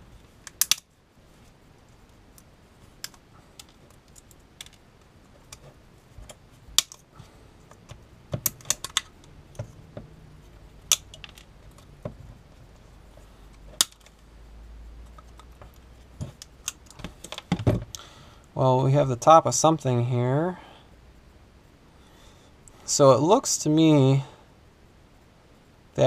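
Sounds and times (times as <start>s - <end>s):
pliers clicking on metal: 0.4s - 0.9s.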